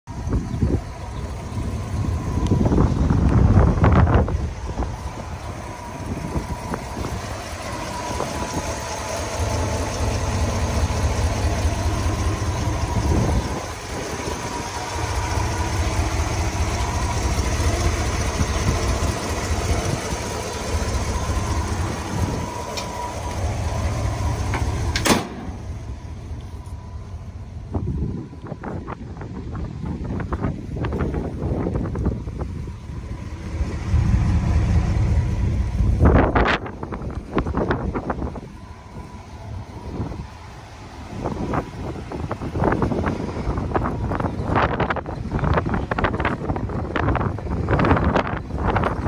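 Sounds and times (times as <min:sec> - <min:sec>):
truck engine idling: 0:00.0 - 0:49.0
hood slamming shut: 0:24.4 - 0:25.9.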